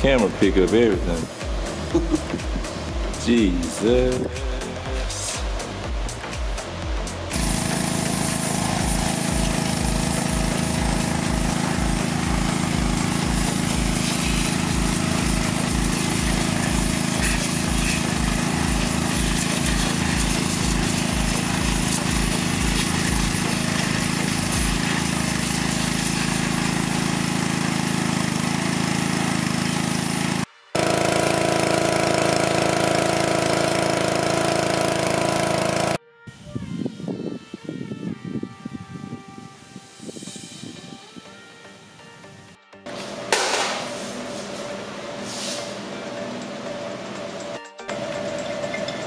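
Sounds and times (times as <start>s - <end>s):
pressure washer running: 0.0s - 36.0s, 42.9s - 49.0s
hiss of water spray: 7.3s - 36.0s, 39.6s - 41.0s, 43.6s - 45.7s.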